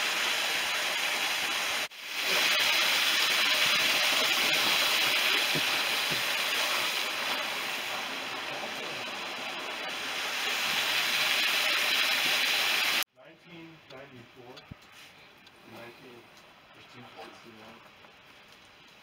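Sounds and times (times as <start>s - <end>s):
water rushing in rocky creek: 0.0s - 13.0s.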